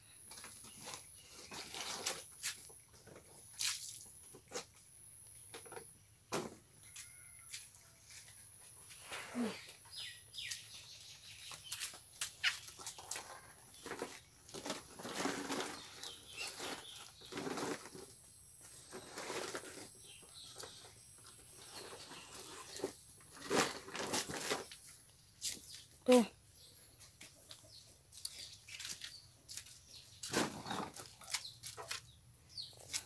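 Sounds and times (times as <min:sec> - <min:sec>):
plastic sack rustling and crinkling: 0:12.4 - 0:25.0, 0:28.5 - 0:32.0.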